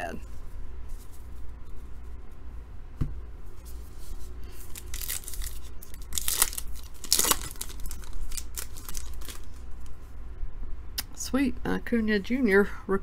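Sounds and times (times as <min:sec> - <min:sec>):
foil wrapper tearing and crinkling: 0:04.5 - 0:09.8.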